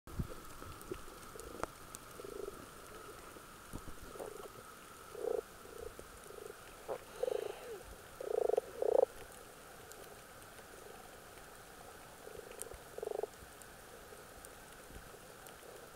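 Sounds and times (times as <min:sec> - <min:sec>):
faint steady tone: 0:00.1 - 0:15.9
underwater bubbling and gurgling: 0:00.1 - 0:15.9
faint clicks: 0:00.2 - 0:15.9.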